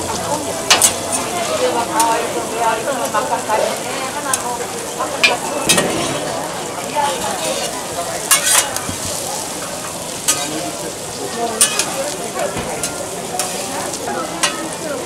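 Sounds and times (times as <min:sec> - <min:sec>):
pancake sizzling in oil: 0:00.1 - 0:15.0
metal tongs clicking on griddle: 0:00.7 - 0:01.2, 0:07.4 - 0:10.6, 0:11.6 - 0:12.2, 0:12.8 - 0:14.8.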